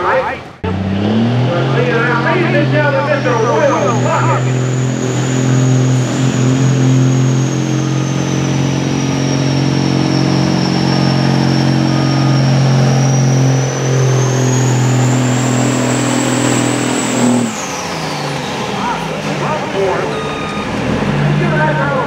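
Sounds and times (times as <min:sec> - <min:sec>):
diesel truck engine under load: 0:00.0 - 0:22.0
high whine: 0:01.8 - 0:18.1.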